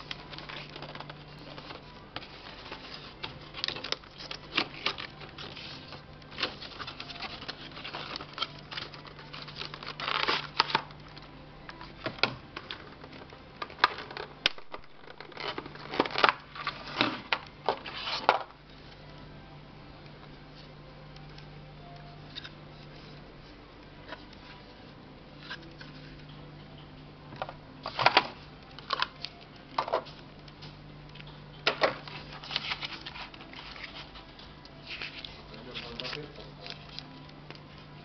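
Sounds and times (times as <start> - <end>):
packaging rustling and clicking: 0.0 - 18.5, 27.8 - 37.7.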